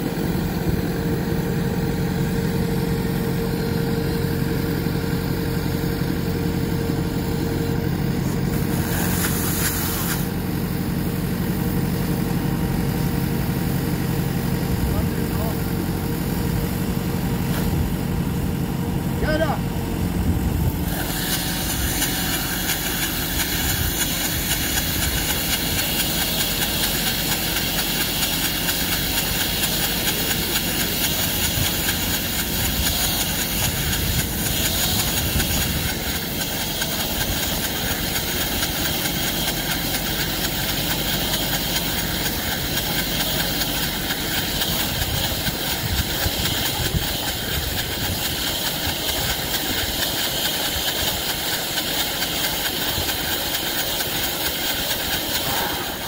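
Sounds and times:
tractor engine running: 0.0s - 56.0s
steady hiss: 20.9s - 56.0s.

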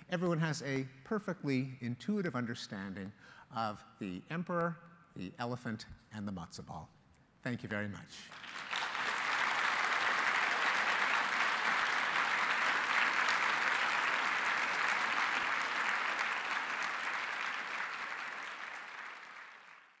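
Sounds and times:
audience applauding: 8.3s - 20.0s.

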